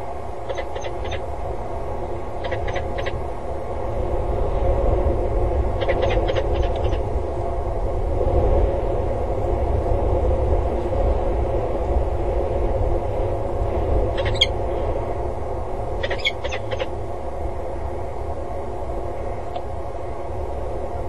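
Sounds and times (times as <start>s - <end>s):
low rumble: 0.0s - 21.0s
falcon calling: 0.5s - 1.3s, 2.4s - 3.2s, 5.8s - 7.0s, 14.2s - 14.5s, 16.0s - 16.9s.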